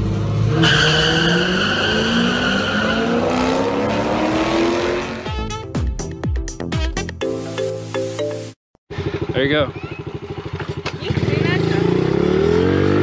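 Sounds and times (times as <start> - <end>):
car engines accelerating: 0.0 - 5.3, 11.1 - 13.0
tyre squeal: 0.6 - 3.6.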